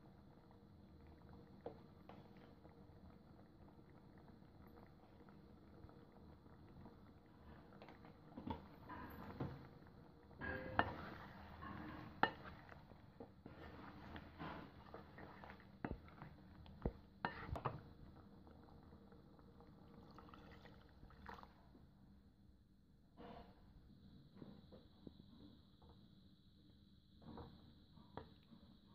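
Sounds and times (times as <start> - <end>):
spatula scraping frying pan: 10.4 - 16.4, 17.2 - 17.8.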